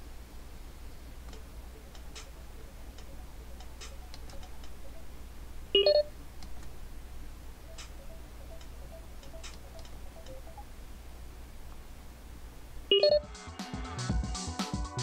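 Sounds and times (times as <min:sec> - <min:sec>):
two-note electronic beep: 0:05.8 - 0:06.1.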